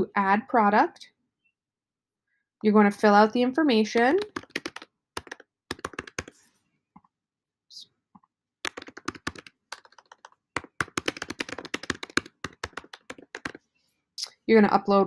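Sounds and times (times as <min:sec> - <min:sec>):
computer keyboard typing: 0:03.9 - 0:06.4, 0:08.6 - 0:13.6.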